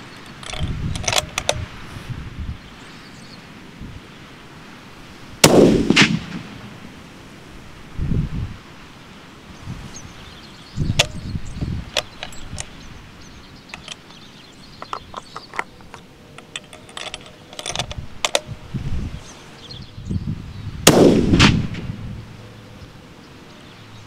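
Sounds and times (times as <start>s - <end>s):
small clicks and rustles: 0.0s - 1.7s, 11.9s - 12.8s, 13.7s - 14.2s, 14.8s - 18.6s
wind buffeting microphone: 0.0s - 4.2s, 5.1s - 8.8s, 9.4s - 23.9s
rifle shot: 5.4s - 6.7s, 20.8s - 22.0s.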